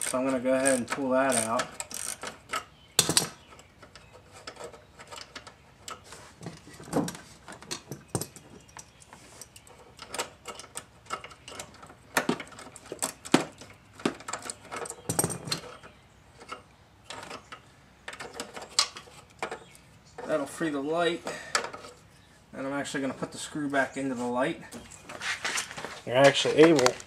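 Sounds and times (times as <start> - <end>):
hand tools clicking on metal: 0.0 - 6.0.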